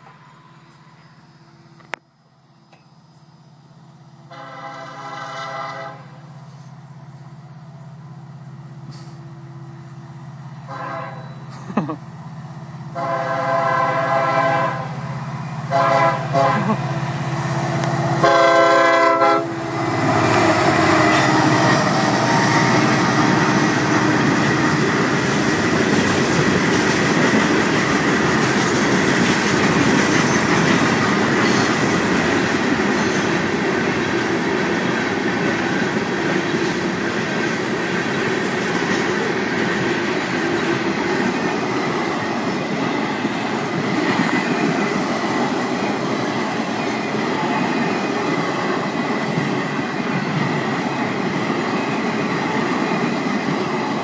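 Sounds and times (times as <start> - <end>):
freight train rumbling over rails: 0.0 - 2.0, 3.0 - 54.0
train air horn blasts: 4.2 - 6.7, 10.6 - 11.5, 12.9 - 15.0, 15.6 - 16.9, 18.0 - 24.8.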